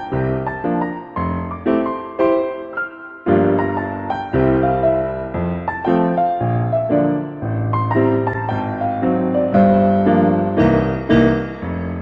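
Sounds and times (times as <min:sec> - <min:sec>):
soft piano chords: 0:00.0 - 0:12.0.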